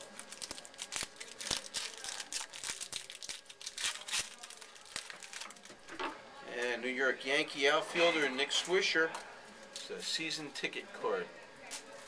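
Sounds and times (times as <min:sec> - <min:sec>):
card pack wrapper crinkling and tearing: 0:00.0 - 0:05.7.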